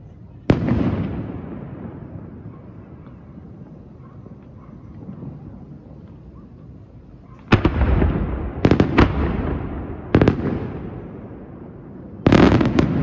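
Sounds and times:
fireworks bursting with echo: 0:00.2 - 0:13.0.

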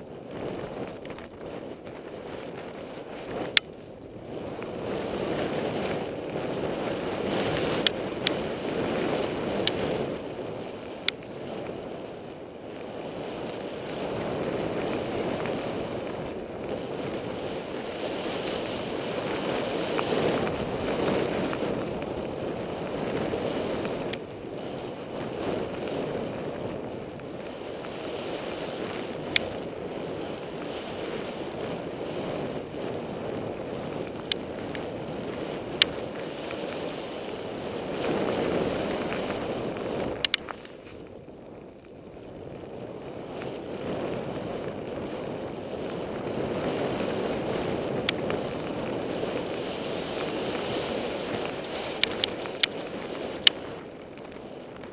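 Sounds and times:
skis rushing through snow: 0:00.0 - 0:54.9
sharp clicks: 0:40.2 - 0:40.6, 0:51.9 - 0:52.8.

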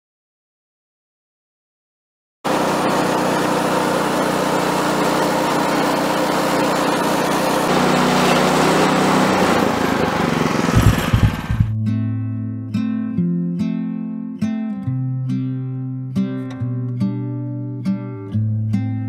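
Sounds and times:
small gasoline engine running: 0:02.5 - 0:11.8.

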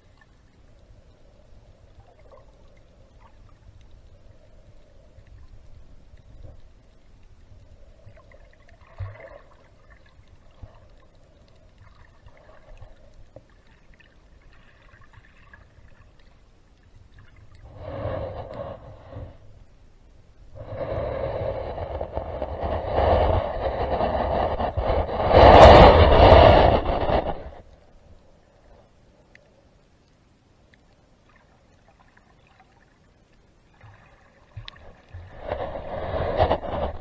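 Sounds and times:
water sounds: 0:00.0 - 0:37.0
breathing through snorkel: 0:17.7 - 0:19.5, 0:20.6 - 0:24.2.

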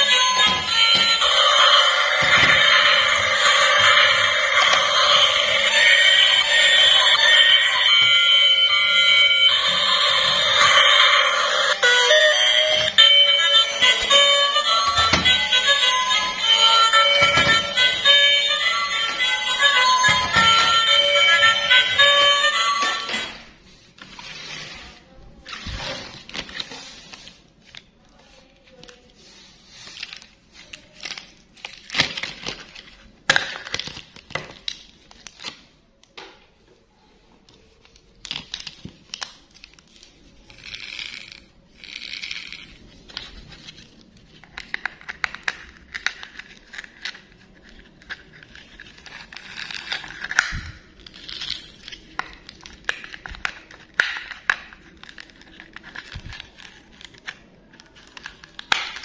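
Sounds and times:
crinkling and rustling: 0:22.8 - 0:35.7, 0:36.4 - 0:41.5, 0:42.5 - 0:59.0
plastic parts clicking and knocking: 0:31.0 - 0:36.4, 0:37.9 - 0:39.9, 0:40.6 - 0:59.0.

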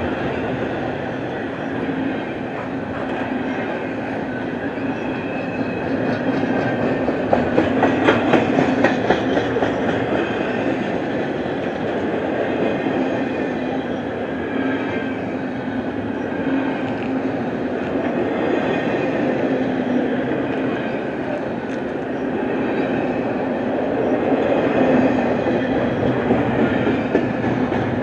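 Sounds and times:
freight train wheels rumbling: 0:00.0 - 0:28.0.

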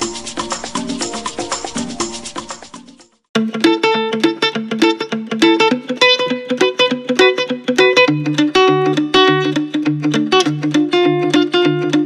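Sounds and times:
upbeat jingle music: 0:00.0 - 0:03.3.

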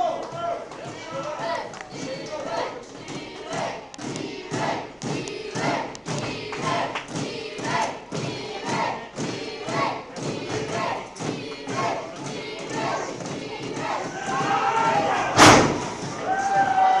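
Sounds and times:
crowd chanting: 0:00.0 - 0:17.0
wrestlers thudding on ring mat: 0:10.2 - 0:16.8.

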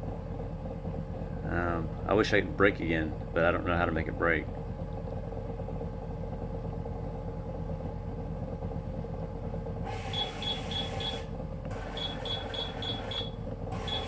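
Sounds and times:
ball machine humming: 0:00.0 - 0:14.0
rapid high beeps: 0:10.1 - 0:14.0.

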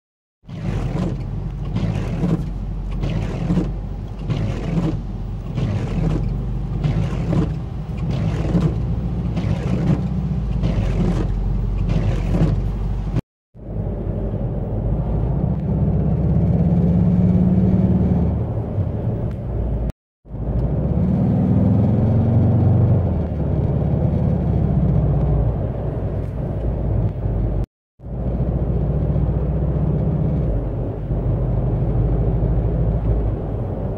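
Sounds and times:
engine hum: 0:00.4 - 0:33.9
wiper blades chattering on wet glass: 0:00.5 - 0:12.6
car cabin noise at highway speed: 0:00.5 - 0:33.9
rattle and buzz from console: 0:00.6 - 0:08.8.

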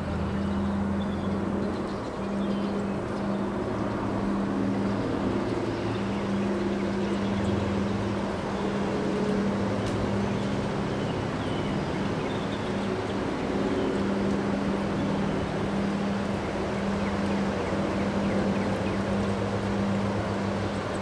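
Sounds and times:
gusty wind through trees: 0:00.0 - 0:21.0.

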